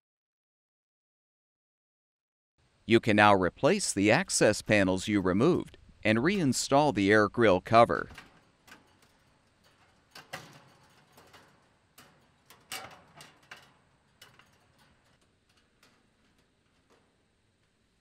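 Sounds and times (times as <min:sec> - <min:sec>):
sheet metal clicks and taps: 0:08.1 - 0:17.8.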